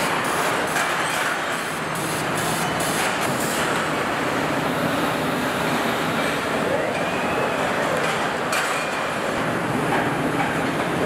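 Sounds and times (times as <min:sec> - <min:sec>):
assembly line machinery noise: 0:00.0 - 0:11.0.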